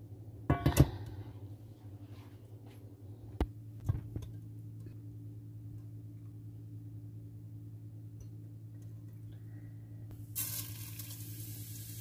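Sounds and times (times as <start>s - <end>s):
steady low hum: 0.0s - 10.4s.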